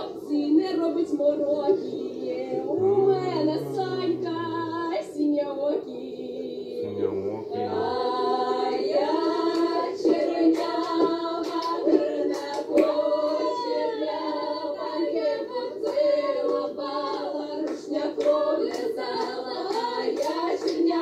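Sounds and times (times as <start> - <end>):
women singing in harmony: 0.0 - 21.0
hand claps: 9.5 - 13.4, 15.8 - 21.0.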